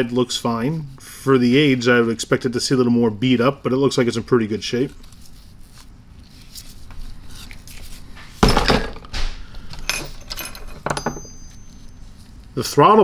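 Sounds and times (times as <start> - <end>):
tool thunking on wooden bench: 8.4 - 9.5
metal parts clicking: 8.6 - 11.7.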